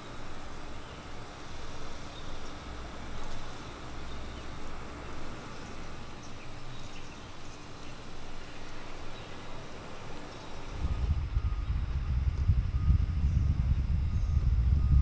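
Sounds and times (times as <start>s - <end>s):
faint high insect trill: 0.0s - 15.0s
wind rumble on microphone: 10.6s - 15.0s.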